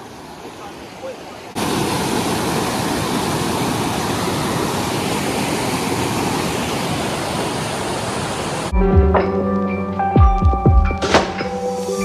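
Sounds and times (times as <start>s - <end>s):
river rapids rushing over boulders: 0.0s - 8.7s.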